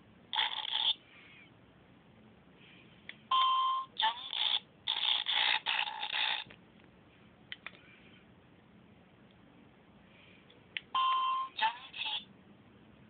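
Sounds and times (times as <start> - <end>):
short electronic beep: 11.0 - 11.6.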